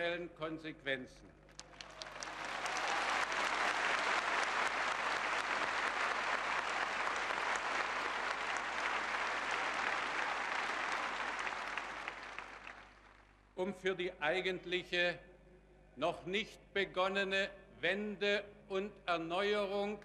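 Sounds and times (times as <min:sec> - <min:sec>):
large crowd applauding: 0:01.5 - 0:13.3.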